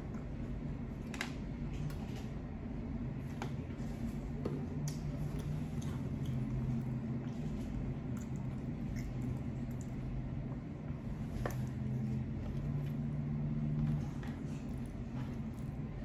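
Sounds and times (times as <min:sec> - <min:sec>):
person chewing: 0:05.0 - 0:16.0.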